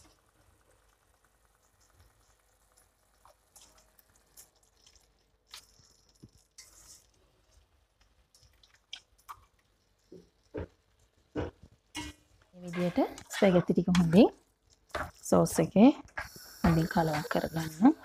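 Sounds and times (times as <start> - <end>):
soft wet drips: 0.0 - 12.6.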